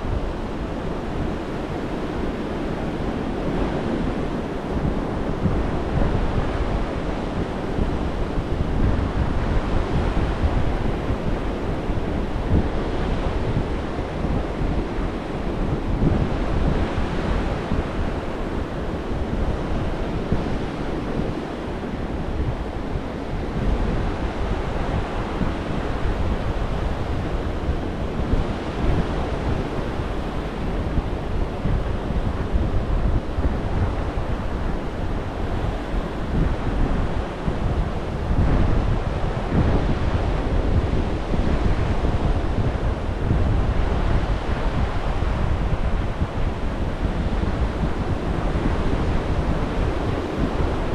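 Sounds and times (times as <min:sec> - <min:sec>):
wind buffeting microphone: 0:00.0 - 0:50.9.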